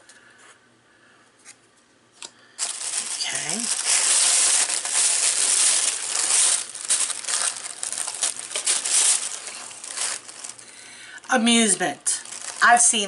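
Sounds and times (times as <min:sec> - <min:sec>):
tissue paper crinkling: 0:02.6 - 0:13.0.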